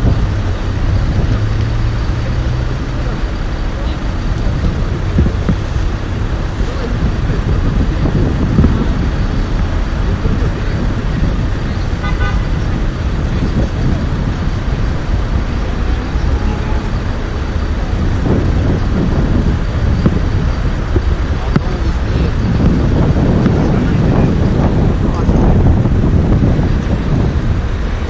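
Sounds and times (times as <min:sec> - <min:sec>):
motorway traffic rumble: 0:00.0 - 0:28.0
wind on microphone: 0:00.0 - 0:28.0
car horn toot: 0:11.9 - 0:12.7.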